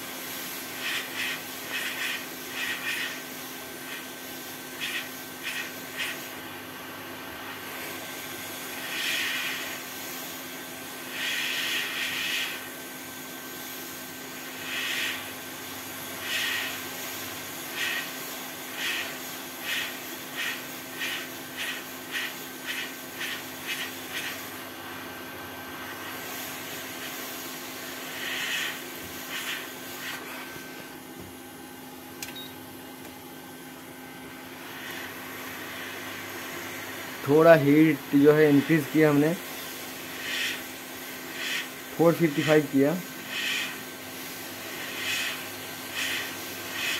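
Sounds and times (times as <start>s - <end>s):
hot air gun hissing: 0.0s - 6.7s, 7.4s - 24.8s, 25.8s - 31.1s, 34.3s - 46.9s.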